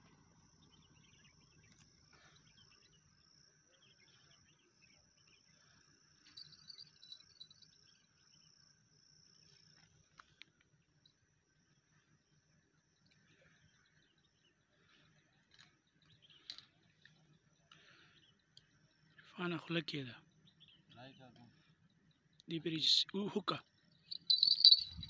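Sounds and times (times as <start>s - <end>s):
faint chirps: 0.0s - 25.0s
insect trill: 0.0s - 25.0s.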